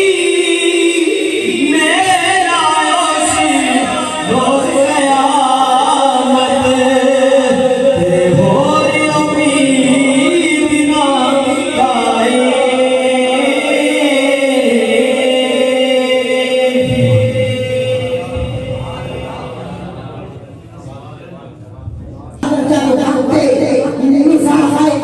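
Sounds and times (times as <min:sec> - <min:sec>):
man singing into a microphone: 0:00.0 - 0:20.3.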